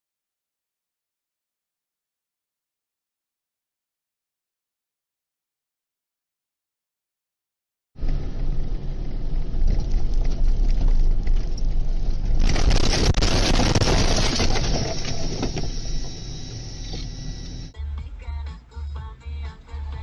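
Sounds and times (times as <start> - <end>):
vehicle rumbling through snow: 8.0 - 17.7.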